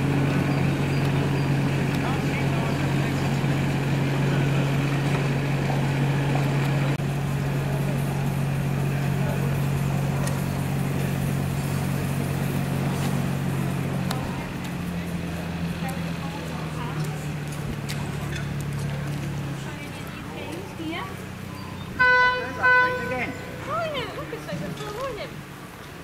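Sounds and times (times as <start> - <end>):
engine running steadily: 0.0 - 26.0.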